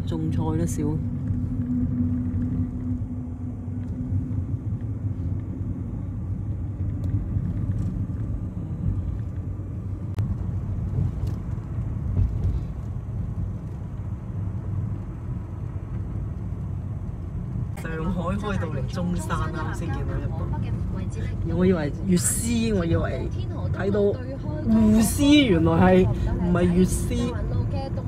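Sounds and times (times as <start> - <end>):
car engine rumble: 0.0 - 28.0
tyres on road: 0.0 - 28.0.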